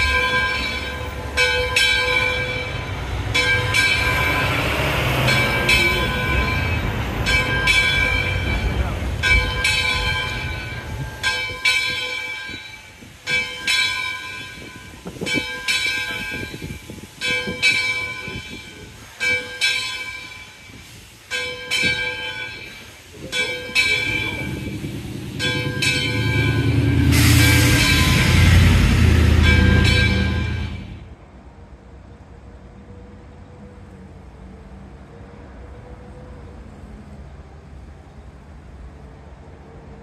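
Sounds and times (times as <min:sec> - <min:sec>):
steam locomotive bell ringing: 0:00.0 - 0:31.1
loud rushing noise: 0:23.8 - 0:31.1
low rumble: 0:23.8 - 0:31.1.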